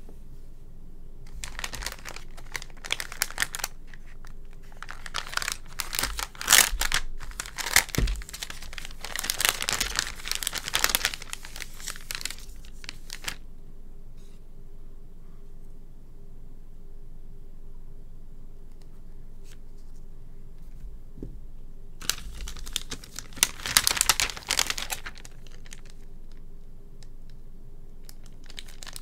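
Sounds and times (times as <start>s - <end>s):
plastic bag crinkling: 1.3s - 13.4s, 22.0s - 26.4s, 28.0s - 29.0s.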